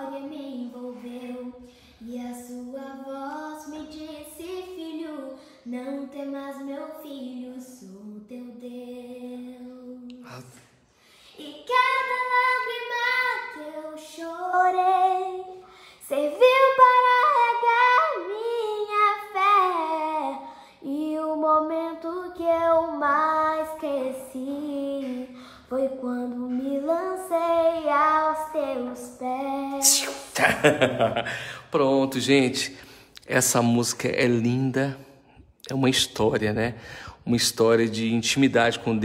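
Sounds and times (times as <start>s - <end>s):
girl singing unaccompanied: 0.0s - 10.4s, 11.2s - 30.4s.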